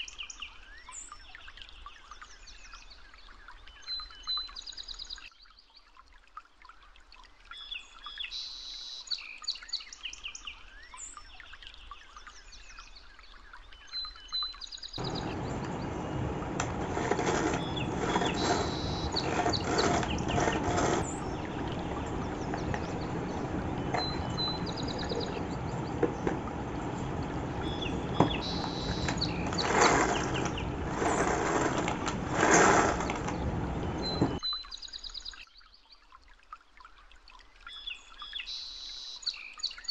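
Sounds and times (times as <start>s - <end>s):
small birds chirping: 14.8s - 35.4s
plastic knocks and rasps: 15.0s - 34.4s
pull cord being pulled: 15.0s - 34.4s
steady background noise: 15.0s - 34.4s.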